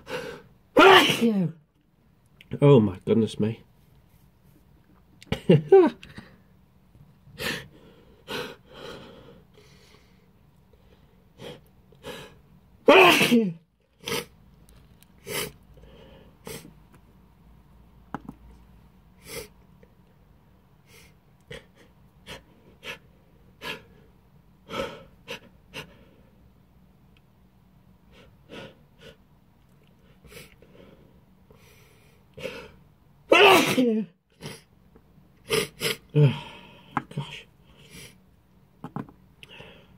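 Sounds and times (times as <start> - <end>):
person sneezing loudly: 0.7 - 1.6, 12.8 - 14.3, 33.3 - 34.7.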